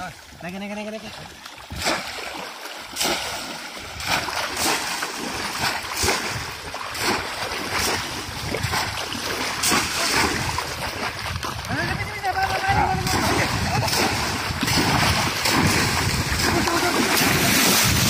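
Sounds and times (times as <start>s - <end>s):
splashes in shallow water: 0.0s - 18.0s
water sloshing: 0.0s - 18.0s.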